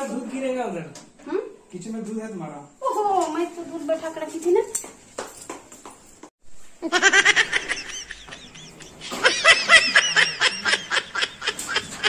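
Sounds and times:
high-pitched snickering laughter: 0:06.8 - 0:12.0.

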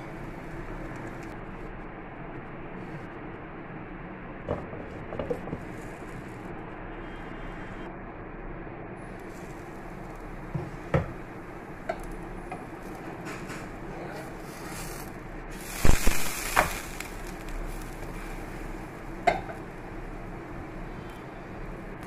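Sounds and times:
steady hiss: 0:00.0 - 0:04.0, 0:09.0 - 0:22.0.

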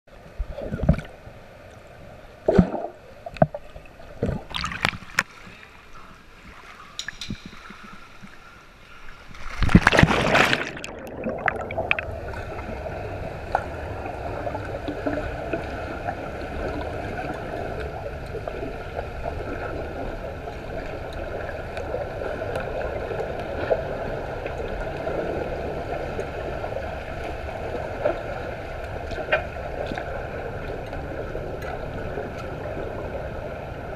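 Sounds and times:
swimmers kicking with fins: 0:04.2 - 0:05.6, 0:09.4 - 0:12.9
bubbles underwater: 0:09.6 - 0:25.8.

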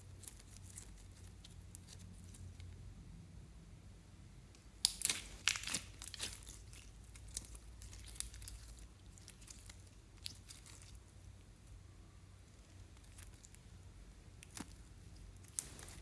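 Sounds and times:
slime crackling and popping: 0:04.7 - 0:11.2, 0:12.8 - 0:13.7, 0:14.3 - 0:16.0.

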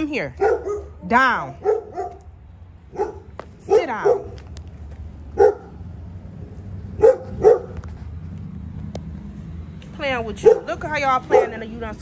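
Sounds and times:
dog barking: 0:00.4 - 0:01.0, 0:01.6 - 0:02.3, 0:02.9 - 0:04.4, 0:05.3 - 0:05.8, 0:07.0 - 0:07.8, 0:10.4 - 0:11.7.

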